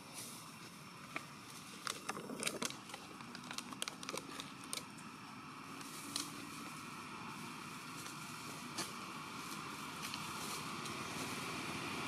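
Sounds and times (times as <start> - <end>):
dry leaves crackling: 1.4 - 4.9, 5.8 - 11.8.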